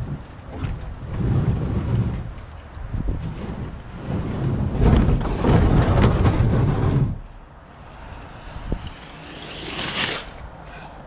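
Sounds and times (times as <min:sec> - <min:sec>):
kayak scraping on concrete: 0:00.0 - 0:10.5
background noise: 0:00.0 - 0:11.0.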